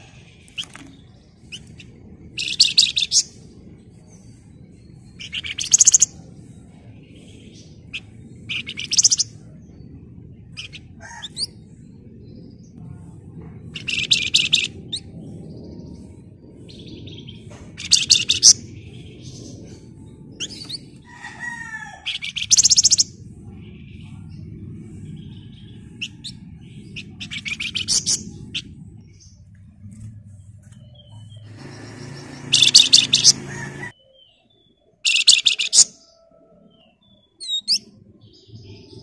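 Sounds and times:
bird rattling call: 31.5s - 33.9s
bird sliding notes: 31.5s - 33.9s.

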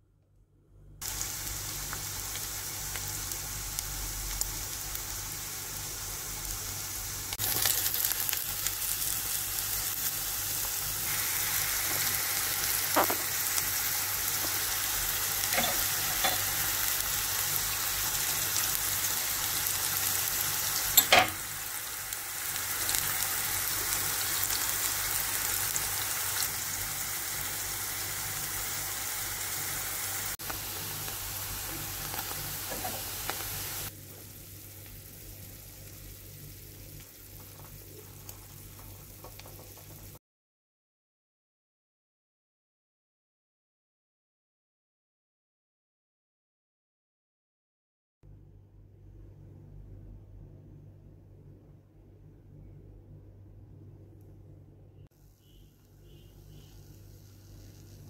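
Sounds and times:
onions sizzling in hot oil: 1.0s - 40.2s, 55.2s - 58.0s.

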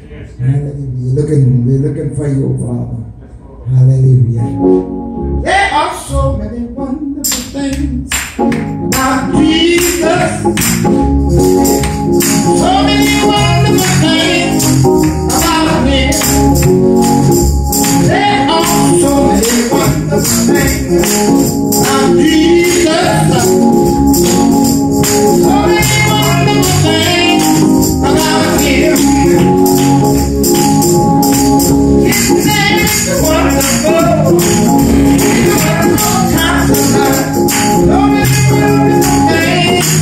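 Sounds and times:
church organ: 4.2s - 5.8s, 8.1s - 40.0s
man singing: 5.4s - 8.1s, 8.9s - 10.6s, 12.5s - 16.6s, 18.0s - 23.8s, 25.4s - 30.0s, 32.0s - 40.0s
percussion beat: 7.2s - 40.0s.

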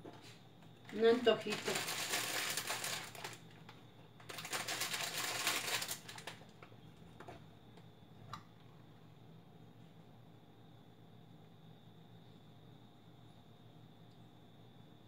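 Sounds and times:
plastic wrapper crinkling: 0.9s - 6.7s.

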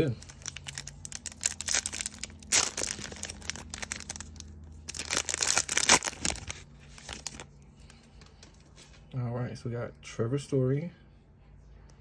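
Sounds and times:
foil pack tearing and crinkling: 0.0s - 7.5s.

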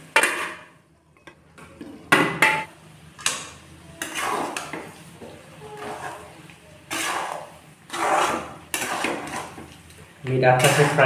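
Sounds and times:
spatula scraping a wok: 4.0s - 11.0s.

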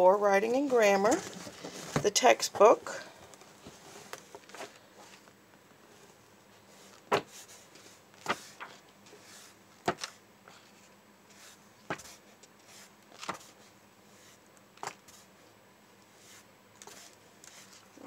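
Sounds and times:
paper pages being turned: 6.7s - 10.2s, 11.3s - 13.6s, 16.1s - 18.0s.

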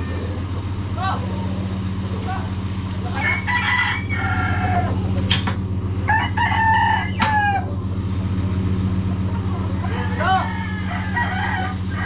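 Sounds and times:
rooster crowing: 0.0s - 0.6s, 3.0s - 5.1s, 6.0s - 7.8s, 9.8s - 12.0s
truck engine running: 0.0s - 12.0s.

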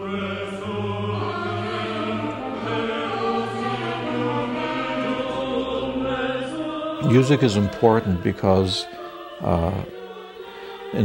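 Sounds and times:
choir singing sacred music: 0.0s - 11.0s
orchestra playing: 6.9s - 9.0s.

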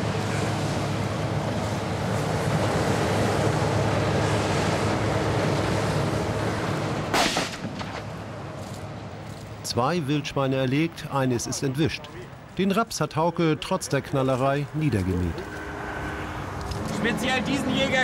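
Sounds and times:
combine harvester drone: 0.0s - 12.6s, 13.4s - 18.0s
sharp bang: 7.1s - 8.0s.

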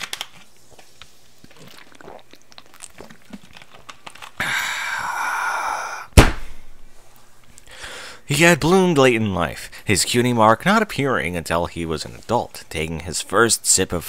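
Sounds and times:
mouth and handling sounds: 0.0s - 4.9s
loud knock: 6.2s - 6.5s.

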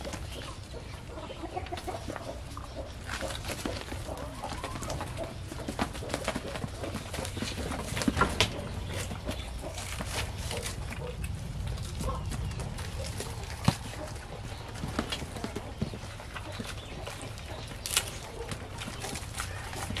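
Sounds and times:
birds calling: 0.0s - 20.0s
knocks and rustles: 3.0s - 20.0s
goats shuffling in wooden pen: 3.1s - 10.8s.

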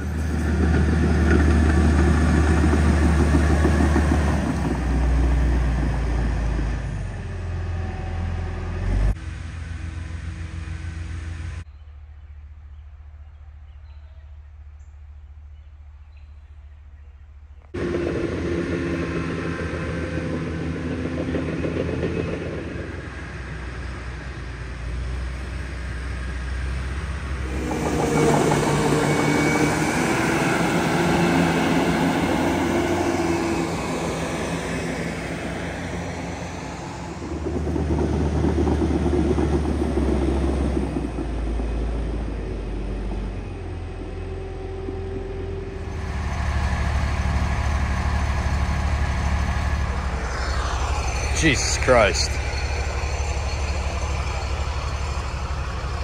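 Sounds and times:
steel tracks clattering: 0.0s - 6.7s, 27.4s - 56.0s
bulldozer diesel engine: 0.0s - 12.7s, 17.7s - 56.0s.

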